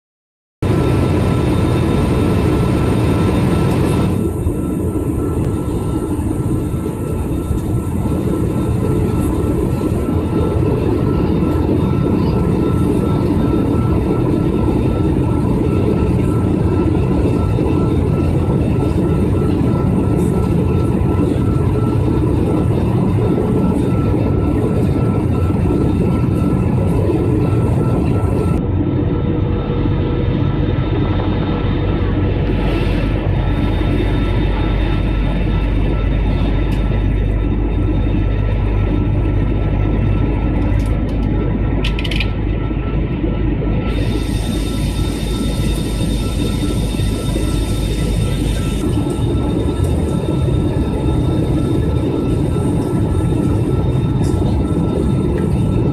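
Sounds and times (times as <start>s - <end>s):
faint steady engine whine: 0.6s - 55.9s
jet airliner cabin noise: 0.6s - 55.9s.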